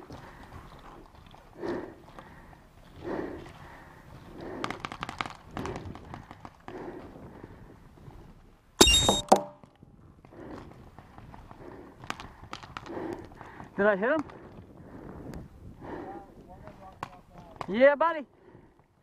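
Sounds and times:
paintball marker shot: 8.8 - 9.6.

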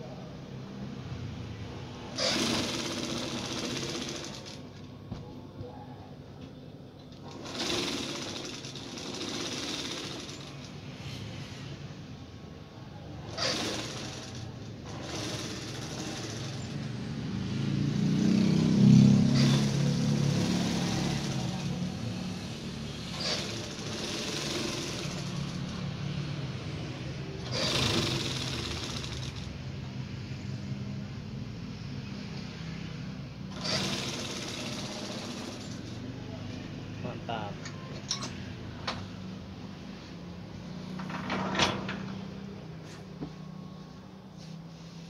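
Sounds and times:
sewing machine running: 2.2 - 4.6, 7.2 - 10.7, 13.3 - 16.8, 19.4 - 21.9, 23.1 - 25.9, 27.4 - 29.5, 33.5 - 36.0.

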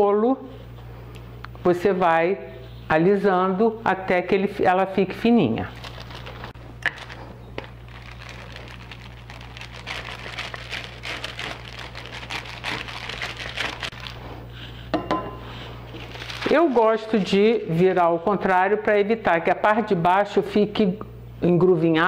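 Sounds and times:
baking paper rustling: 5.6 - 14.4, 15.5 - 18.0.

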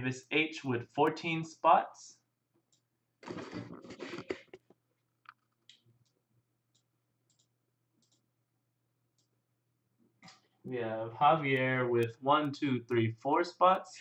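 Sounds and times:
computer mouse clicks: 5.2 - 8.2.

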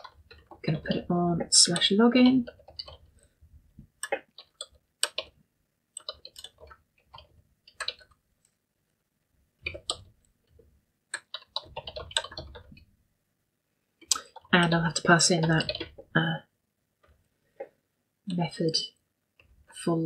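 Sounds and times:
computer keyboard typing: 0.0 - 3.3, 4.0 - 5.4, 6.0 - 8.2, 9.6 - 10.2, 11.1 - 12.8, 14.0 - 16.1.

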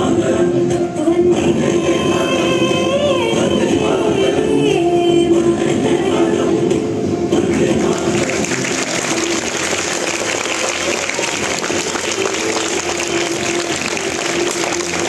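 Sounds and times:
person singing: 0.0 - 15.0
audience applauding: 7.5 - 15.0.

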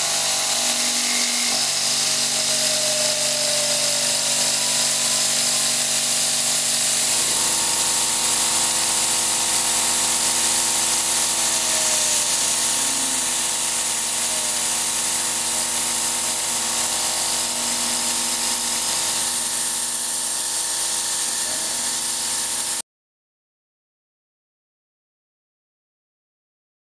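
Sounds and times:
high hiss of cutting: 0.0 - 22.8
milling machine whining: 0.0 - 22.8.

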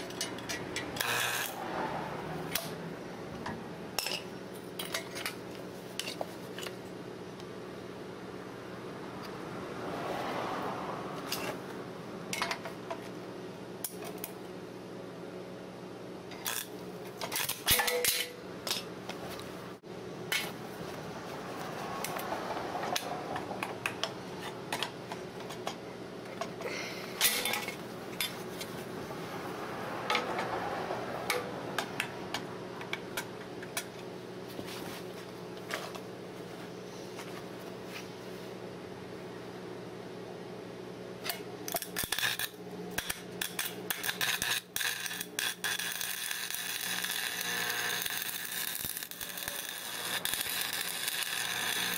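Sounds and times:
welder electric hum: 0.0 - 10.3, 16.2 - 30.2, 41.2 - 51.9
welding arc crackling: 1.0 - 1.6, 16.4 - 16.8, 41.7 - 51.9
sharp welding pops: 41.7 - 51.9.

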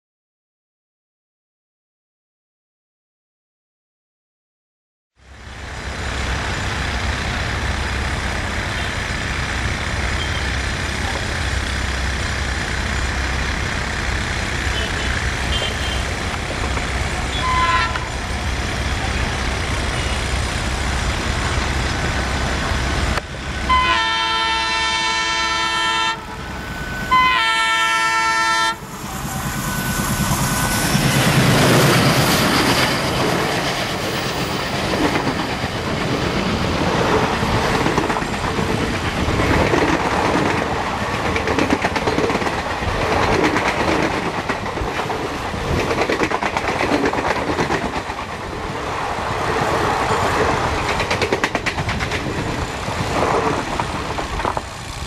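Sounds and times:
diesel locomotive engines rumbling: 5.2 - 55.0
train coaches rushing clatter: 5.8 - 55.0
locomotive air horn: 14.7 - 16.2, 17.3 - 18.2, 23.6 - 30.2.

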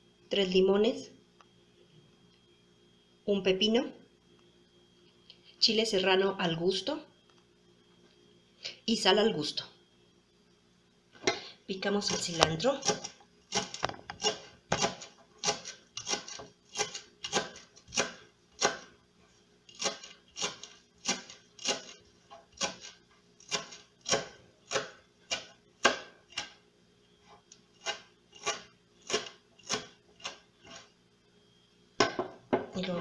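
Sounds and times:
knife chopping on plastic board: 12.1 - 18.9, 19.7 - 26.6, 27.8 - 30.9.

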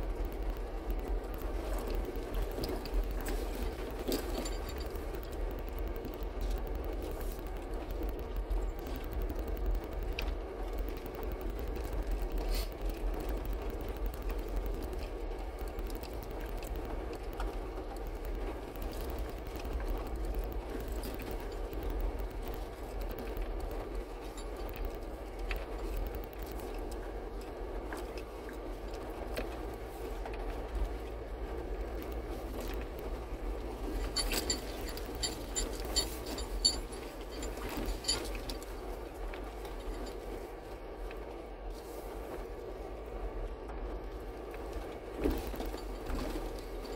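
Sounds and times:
engine and tyre rumble: 0.0 - 46.9
knocks and rattles: 33.7 - 38.8.

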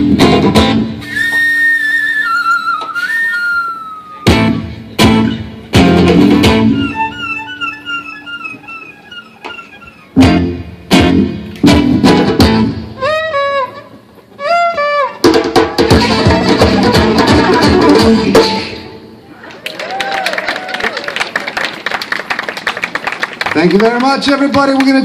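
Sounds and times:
band playing: 0.0 - 19.2
acoustic guitar strumming: 4.2 - 19.0
violin imitating birdsong: 6.4 - 10.2.

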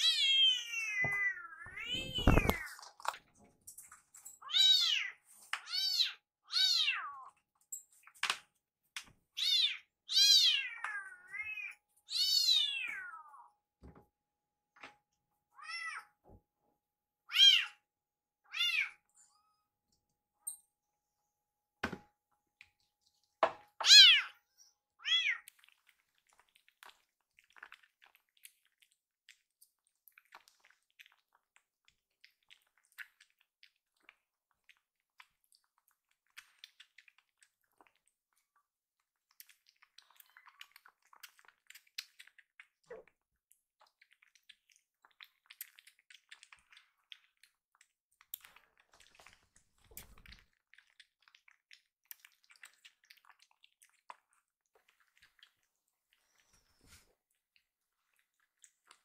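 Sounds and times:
kitten meowing: 0.0 - 2.7, 23.8 - 24.4.

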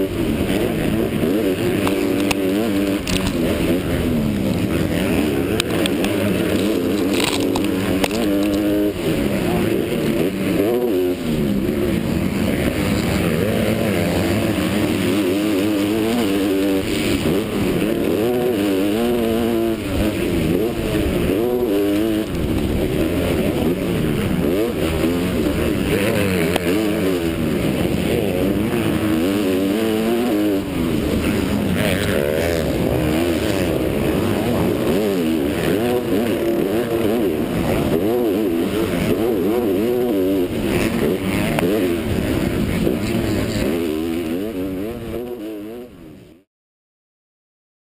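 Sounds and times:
motocross bike engine revving: 0.0 - 46.5.

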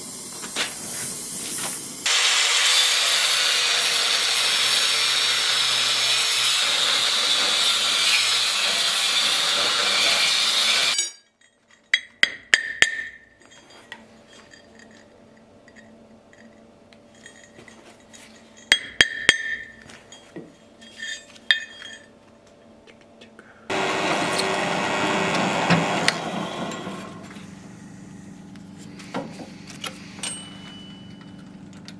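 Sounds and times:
angle grinder grinding steel: 2.1 - 11.2, 23.7 - 27.8
metallic clinks on anvil: 30.2 - 31.6.

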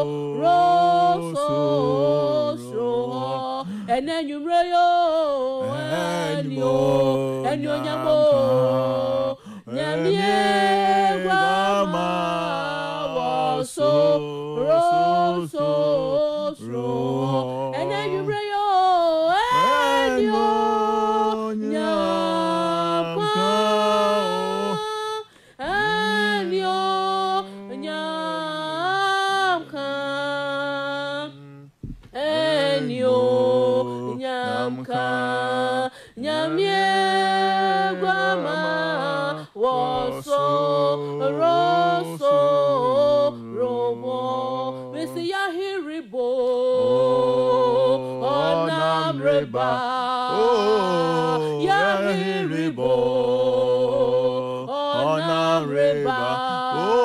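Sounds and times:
woman singing: 0.0 - 57.0
man singing: 5.6 - 18.4, 19.4 - 25.0, 46.7 - 57.0.

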